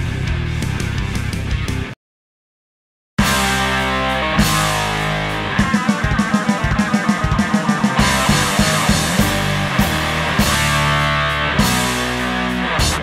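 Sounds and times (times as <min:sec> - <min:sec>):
rock music: 0:00.0 - 0:02.0, 0:03.2 - 0:13.0
quick drum beats: 0:04.4 - 0:13.0.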